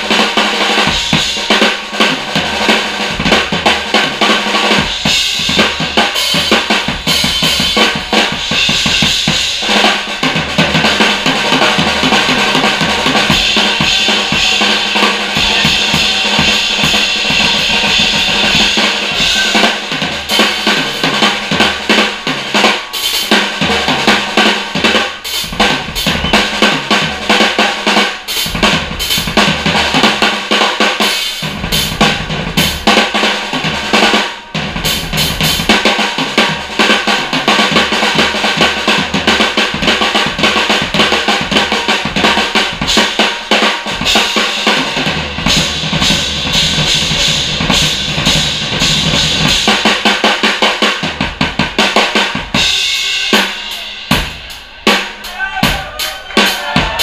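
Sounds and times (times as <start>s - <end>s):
snare and tom strokes: 0.0s - 57.0s
cymbals crashing: 10.9s - 29.2s, 52.6s - 57.0s.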